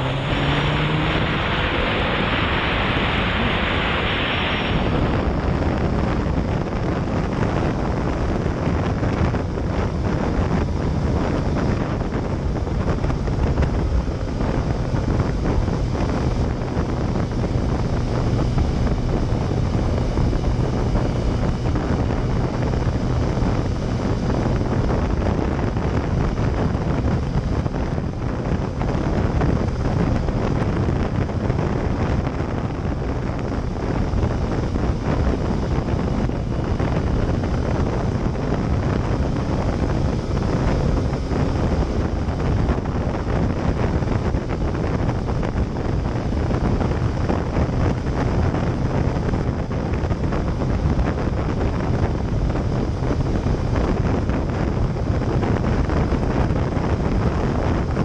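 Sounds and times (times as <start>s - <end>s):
tyres on wet road: 0.0s - 5.5s
motorcycle engine: 0.0s - 58.0s
wind rushing over microphone: 0.0s - 58.0s.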